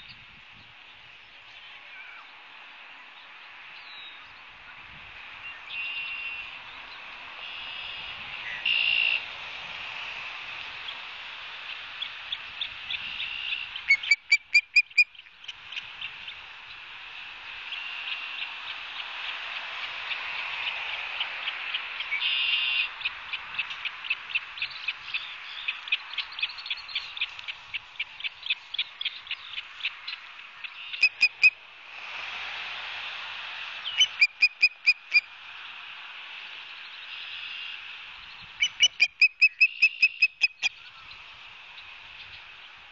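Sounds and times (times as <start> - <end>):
steady high hiss: 0.0 - 42.9
osprey whistled calls: 13.2 - 15.2, 30.6 - 31.6, 33.9 - 35.3, 38.6 - 41.1.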